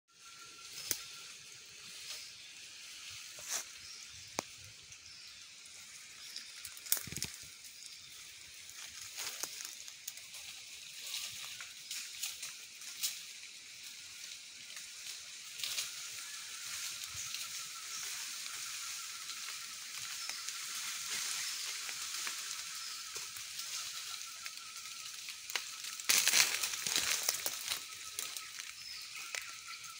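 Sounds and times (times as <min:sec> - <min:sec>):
high hiss of forest ambience: 0:00.1 - 0:29.9
twigs and leaves snapping and rustling: 0:00.7 - 0:01.2, 0:06.1 - 0:08.0, 0:08.7 - 0:29.9.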